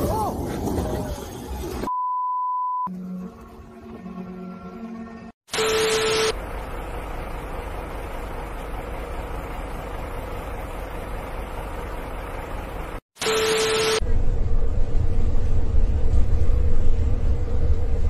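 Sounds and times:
steady beep: 1.9s - 2.9s, 13.2s - 14.0s
truck rumble: 6.4s - 13.0s
burst of static: 13.2s - 14.0s.

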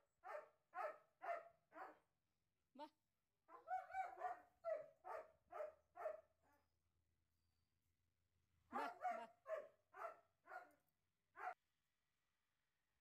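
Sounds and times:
dog barking: 0.2s - 2.1s, 3.5s - 6.7s, 8.7s - 10.8s, 11.4s - 11.6s.

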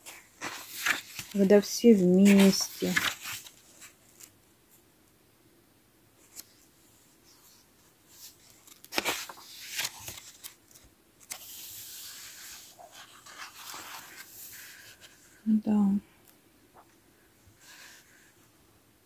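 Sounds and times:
paper crackles: 0.0s - 4.4s, 7.3s - 15.4s
paper pages rustling: 0.0s - 4.4s, 6.2s - 15.4s.

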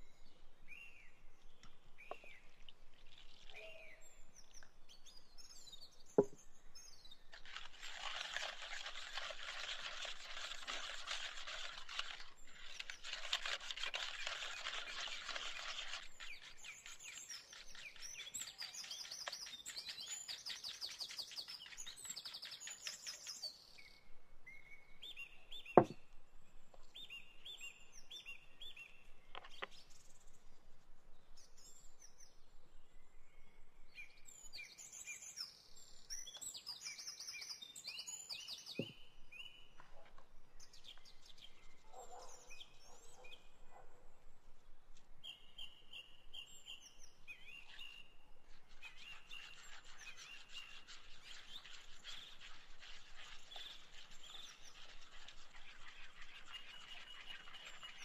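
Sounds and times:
songbirds chirping and singing: 34.0s - 43.8s.

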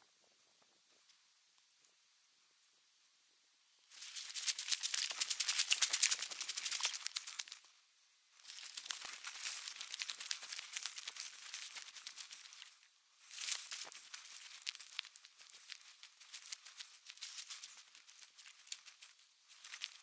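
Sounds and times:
dry rustling and crackling: 3.9s - 7.7s, 8.4s - 20.0s.

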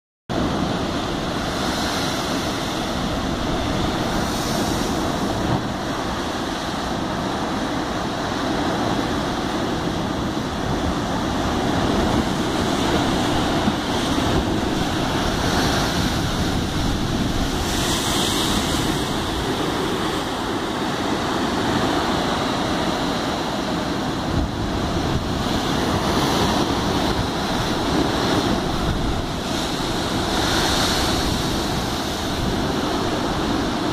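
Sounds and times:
wind buffeting microphone: 0.3s - 33.9s
surf breaking against rocks: 9.5s - 33.9s.

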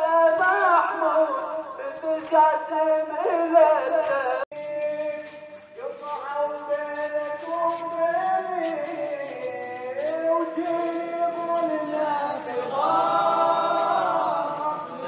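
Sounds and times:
slow sung chant: 0.0s - 15.0s.

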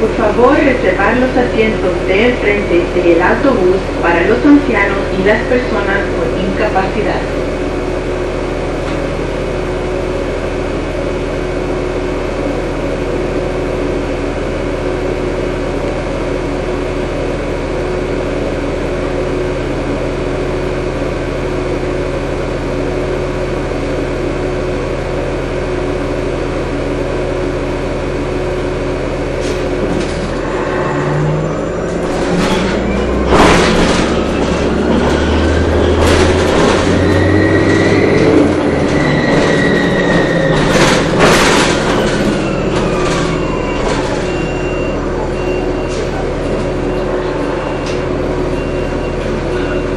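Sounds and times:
bus engine hum: 0.0s - 49.9s
knocks and rattles: 31.9s - 44.5s.

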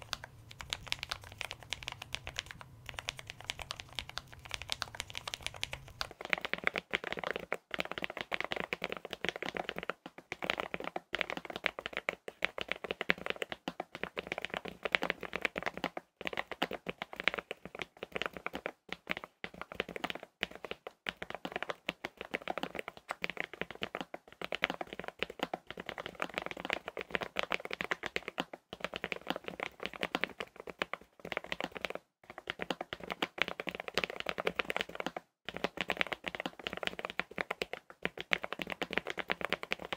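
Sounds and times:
mechanical keyboard typing: 0.0s - 39.9s.

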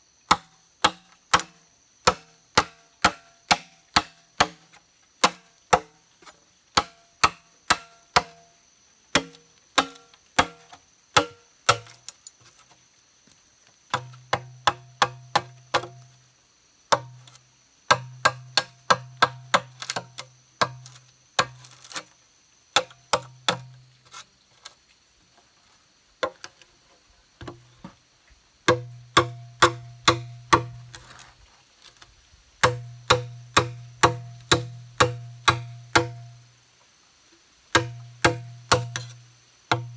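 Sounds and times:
mallet knocks chopping bamboo: 2.1s - 4.6s, 9.2s - 10.6s, 28.7s - 30.8s, 32.6s - 36.3s, 37.7s - 39.9s
hollow bamboo ringing: 28.7s - 30.9s, 32.6s - 36.4s, 37.8s - 39.9s.

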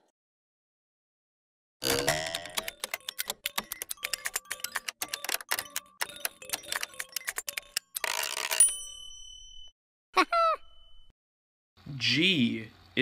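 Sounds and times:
rapid ticking: 2.1s - 8.6s.

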